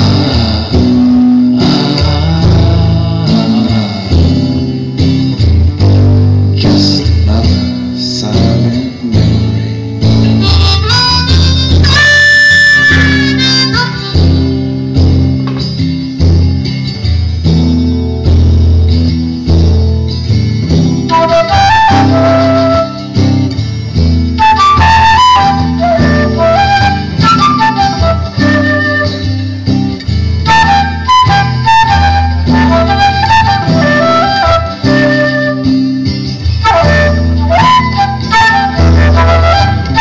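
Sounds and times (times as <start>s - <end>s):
acoustic guitar: 0.0s - 40.0s
harmonica solo: 10.1s - 14.8s, 21.1s - 23.5s, 24.3s - 29.7s, 30.4s - 40.0s
flute playing: 10.3s - 14.6s, 21.0s - 23.5s, 24.3s - 29.7s, 30.4s - 40.0s.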